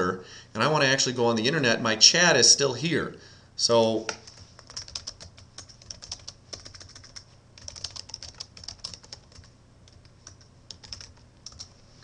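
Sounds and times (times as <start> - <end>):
keyboard typing: 4.2 - 11.7.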